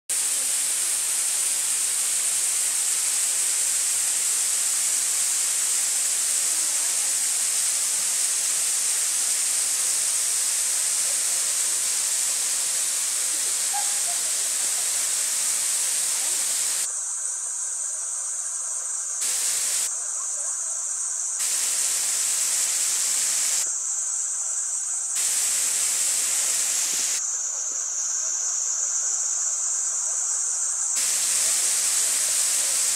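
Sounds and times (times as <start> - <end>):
waterfall rushing hiss: 0.1 - 16.9, 19.2 - 19.9, 21.4 - 23.7, 25.2 - 27.2, 31.0 - 32.9.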